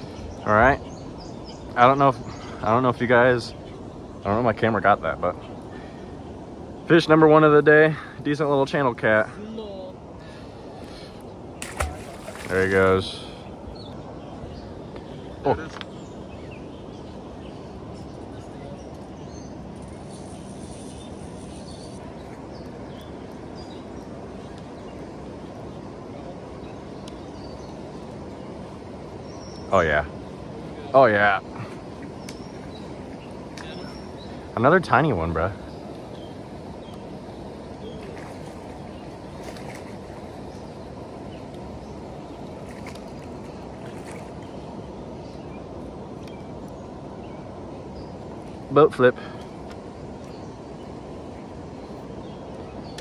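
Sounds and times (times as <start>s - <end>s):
river current rushing: 4.2s - 14.8s.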